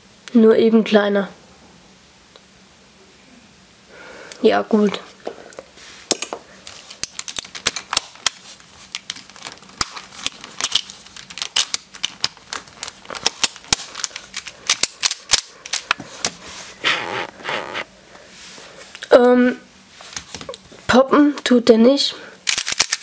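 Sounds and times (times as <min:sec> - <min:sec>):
plastic cube pieces clicking: 0:07.0 - 0:16.0, 0:22.5 - 0:23.0.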